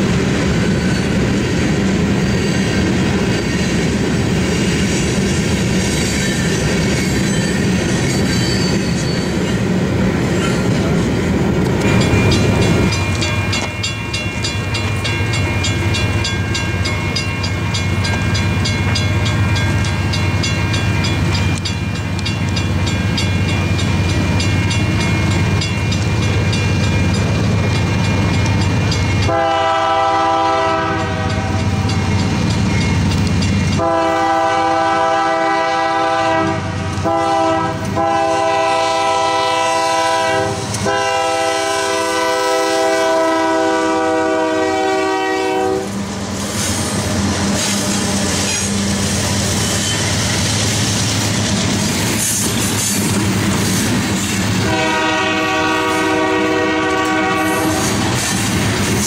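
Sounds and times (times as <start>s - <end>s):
diesel locomotive rumble: 0.0s - 59.0s
crossing bell ringing: 5.9s - 36.2s, 47.2s - 59.0s
locomotive air horn: 29.2s - 31.8s, 33.8s - 46.0s, 54.6s - 58.1s.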